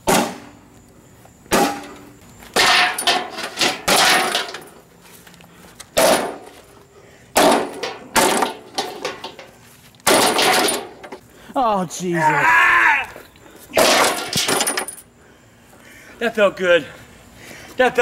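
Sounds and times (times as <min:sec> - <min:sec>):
metal clangs and crashes: 0:01.5 - 0:04.8, 0:06.0 - 0:06.6, 0:07.4 - 0:09.5, 0:10.1 - 0:11.2, 0:13.8 - 0:15.0.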